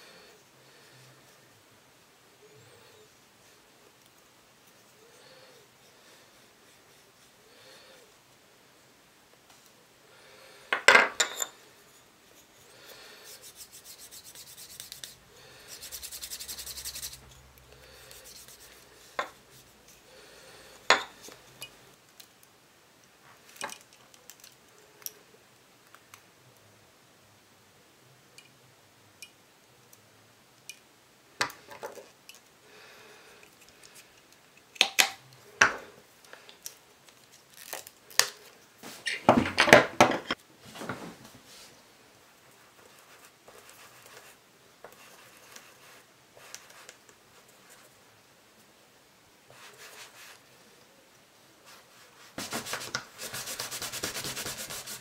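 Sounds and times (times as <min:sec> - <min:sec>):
block rubbing on leather strap: 0:13.2 - 0:17.3, 0:18.1 - 0:19.7, 0:52.4 - 0:55.0.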